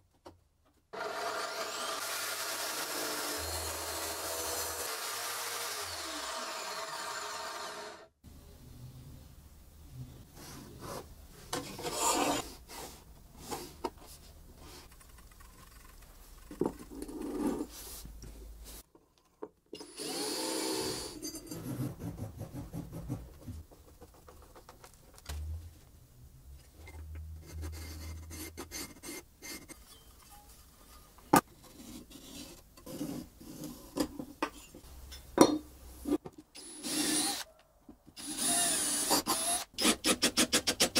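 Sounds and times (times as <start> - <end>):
drill boring into steel tube: 1.0 - 8.1, 19.8 - 21.2, 36.6 - 37.5, 38.2 - 40.0
knocks and handling noises: 21.4 - 26.0.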